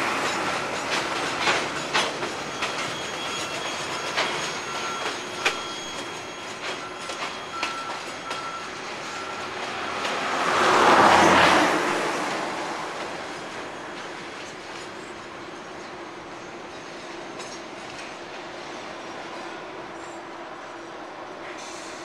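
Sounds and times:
train wheels clicking on rail joints: 0.0 - 20.2
wheel squeal: 0.2 - 10.2.

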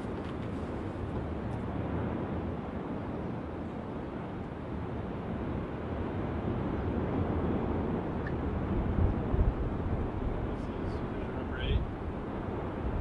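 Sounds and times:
volcano low rumble: 0.0 - 13.0
wind on microphone: 6.5 - 13.0.

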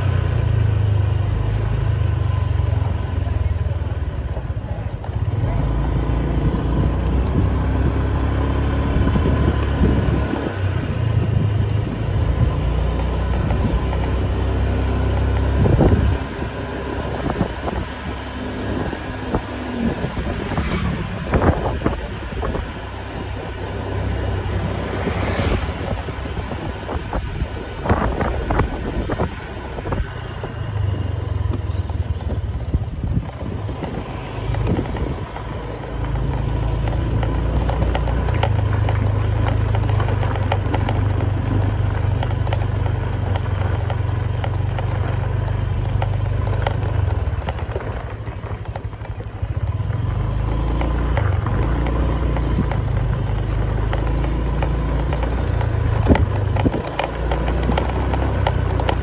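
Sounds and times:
motorbike engine running: 0.0 - 59.0
wind rumble on microphone: 3.6 - 59.0
small knocks and rattles: 31.2 - 59.0.

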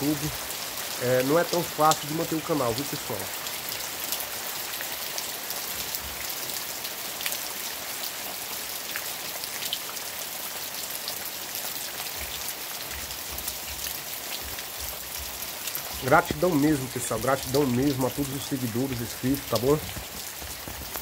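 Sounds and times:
steady rain on leaves: 0.0 - 21.0.

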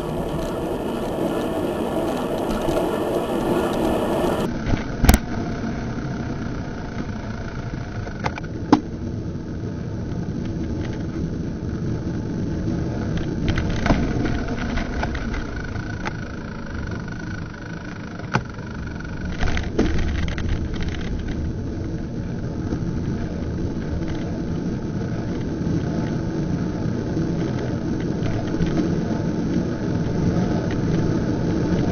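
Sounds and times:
car driving: 0.0 - 31.9
road and wind noise: 0.0 - 31.9.

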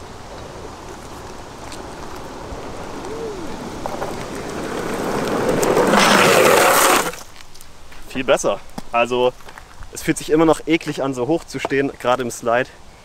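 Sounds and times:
longboard wheels skidding: 0.0 - 7.4
longboard wheels rolling on asphalt: 0.0 - 10.6.

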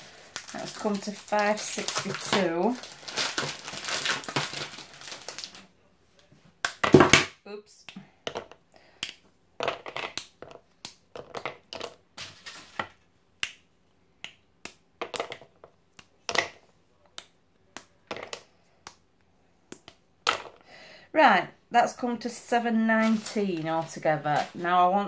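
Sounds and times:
chocolate bars snapping: 8.9 - 9.3, 10.0 - 12.0, 19.6 - 20.5.

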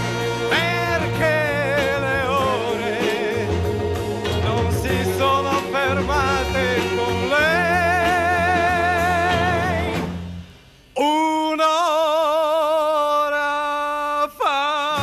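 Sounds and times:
orchestra playing: 0.0 - 10.6
man singing with vibrato: 0.0 - 15.0.

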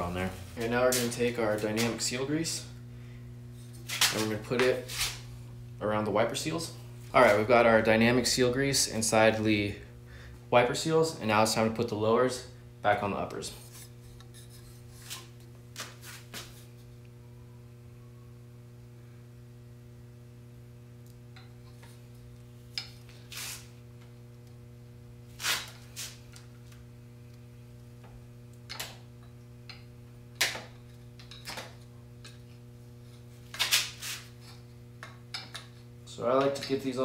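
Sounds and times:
low electrical hum: 0.0 - 37.0
rubbing sliding sounds: 3.8 - 5.2, 33.6 - 34.4.

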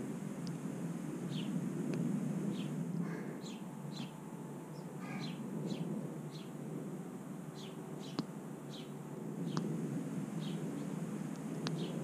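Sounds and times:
low background rumble: 0.0 - 12.0
songbird chirping: 1.3 - 1.6, 2.5 - 6.6, 7.5 - 9.7, 10.4 - 11.0, 11.6 - 12.0.

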